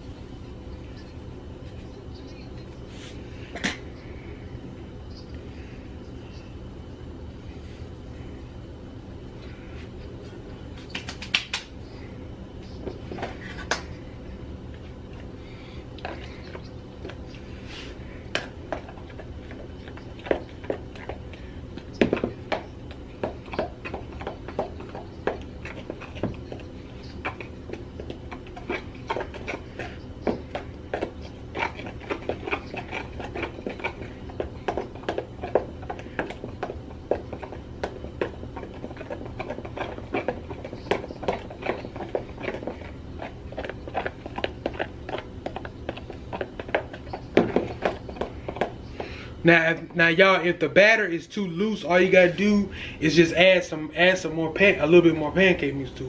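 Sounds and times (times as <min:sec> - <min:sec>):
utensil stirring batter in container: 0:17.2 - 0:49.1.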